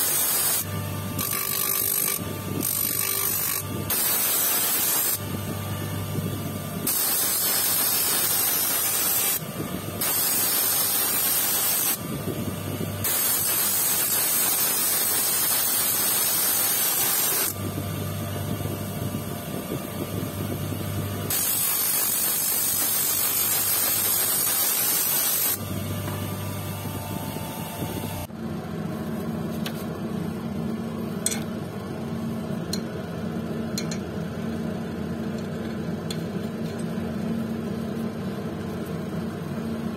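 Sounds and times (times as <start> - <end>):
electric motor hum: 0.0 - 28.3.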